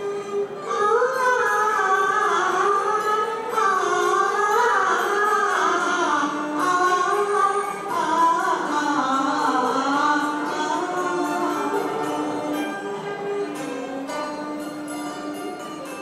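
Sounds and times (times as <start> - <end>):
instrumental accompaniment: 0.0 - 16.0
woman singing: 0.7 - 12.1.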